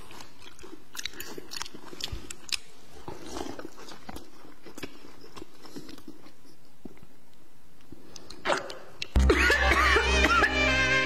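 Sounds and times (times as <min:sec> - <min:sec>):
quiet chewing: 0:00.0 - 0:09.2.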